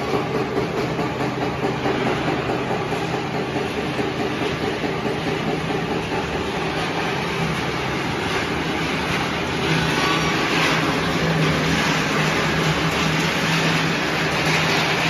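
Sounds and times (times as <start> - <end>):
production line machinery hum: 0.0 - 15.0.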